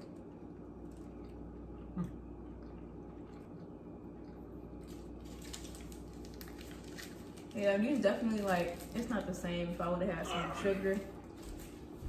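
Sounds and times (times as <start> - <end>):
low steady hum: 0.0 - 12.0
person murmuring: 10.2 - 11.0.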